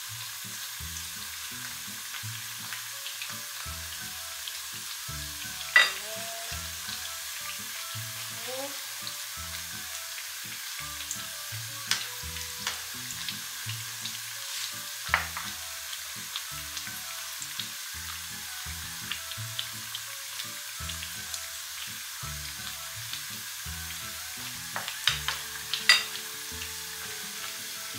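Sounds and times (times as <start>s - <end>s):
fritters deep-frying in oil: 0.0s - 27.9s
utensils clicking against pan: 5.5s - 6.3s, 11.8s - 17.8s, 24.7s - 27.9s.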